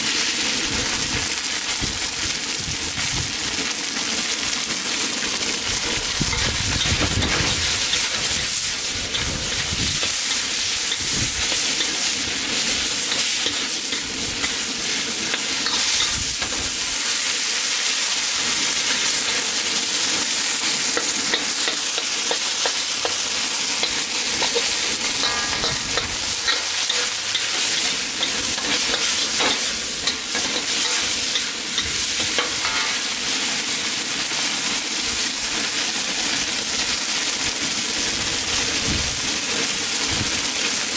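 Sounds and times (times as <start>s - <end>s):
chicken sizzling in a wok: 0.0s - 40.9s
metal spatula scraping a wok: 5.7s - 16.9s, 18.7s - 33.1s.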